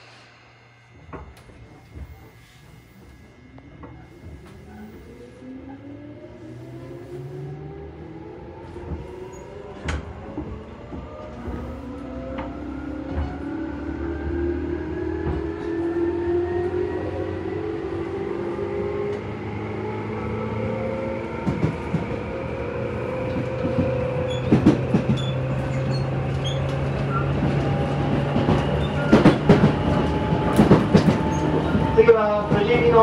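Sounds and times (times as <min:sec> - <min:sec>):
low rumble: 0:00.0 - 0:08.0
train motor whine: 0:00.0 - 0:33.0.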